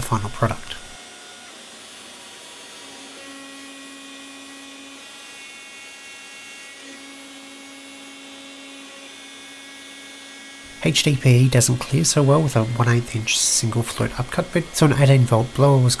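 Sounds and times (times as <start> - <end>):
router spindle running: 0.0 - 16.0
pitched hum: 10.6 - 16.0.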